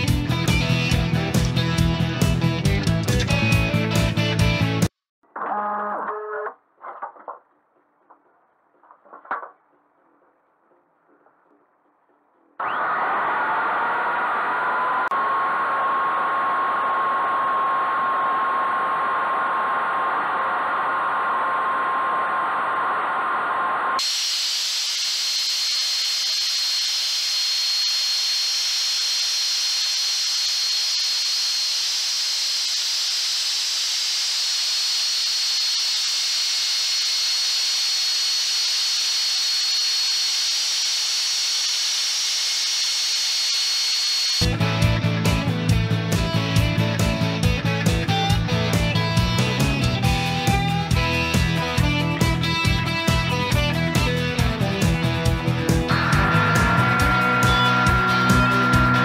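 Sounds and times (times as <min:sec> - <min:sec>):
router spindle whine: 0:12.6 - 0:44.8, 0:55.8 - 0:59.0
bit cutting into wood: 0:24.0 - 0:44.4.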